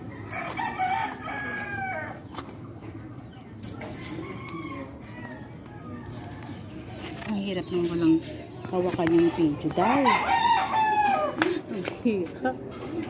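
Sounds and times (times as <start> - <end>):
rooster crowing: 0.0 - 2.2, 3.8 - 6.6, 9.8 - 11.4.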